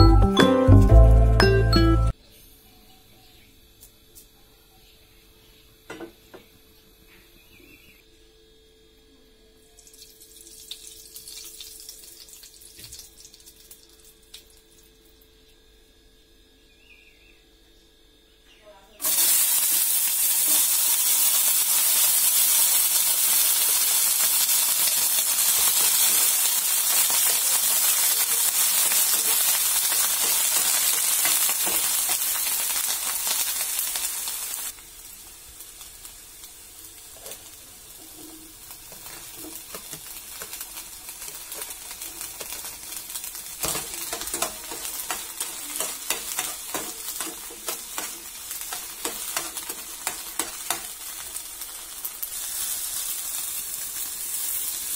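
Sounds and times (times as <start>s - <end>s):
onions sizzling in oil: 9.7s - 15.3s, 19.0s - 54.9s.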